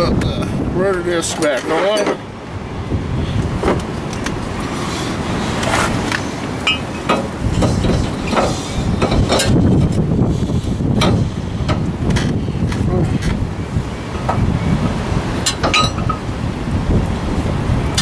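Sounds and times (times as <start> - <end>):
metal clanks and knocks: 6.6 - 9.6, 15.4 - 16.2.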